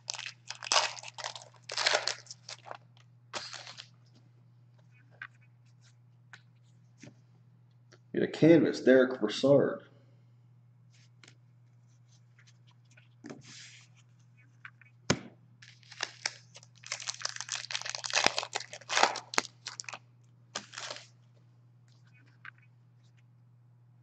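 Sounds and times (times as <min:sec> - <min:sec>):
foil wrappers tearing and crinkling: 0:00.0 - 0:02.8, 0:03.4 - 0:03.9, 0:15.6 - 0:20.0, 0:20.6 - 0:21.1
faint low hum: 0:00.0 - 0:24.0.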